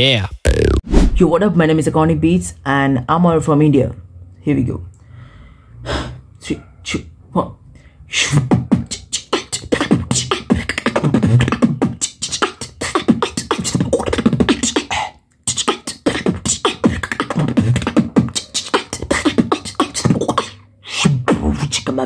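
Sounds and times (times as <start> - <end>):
person beatboxing: 8.1 - 22.0.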